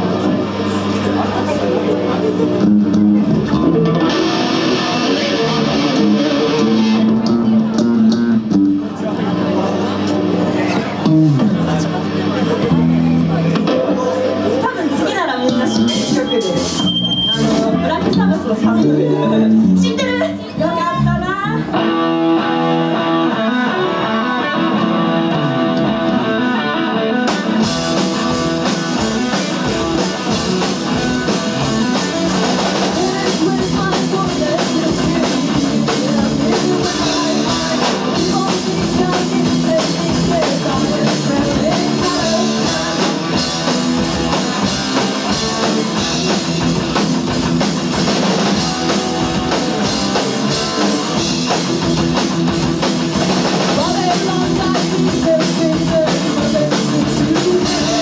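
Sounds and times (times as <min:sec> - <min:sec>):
live rock band playing: 0:00.0 - 0:58.0
woman singing: 0:31.7 - 0:43.6, 0:53.8 - 0:58.0.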